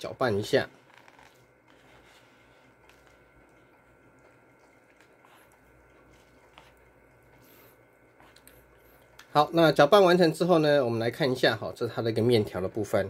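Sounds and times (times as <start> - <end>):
wet squishing of noodles: 0.7 - 9.4.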